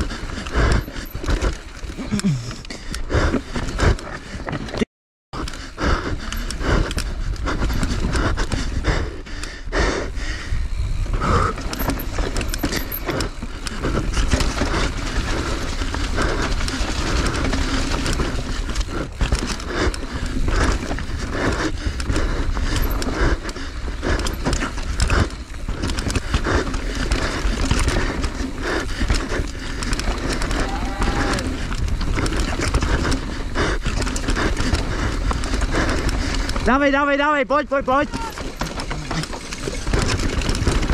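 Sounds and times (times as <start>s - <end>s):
bike knocks and rattles: 10.7s - 37.0s, 38.0s - 40.9s.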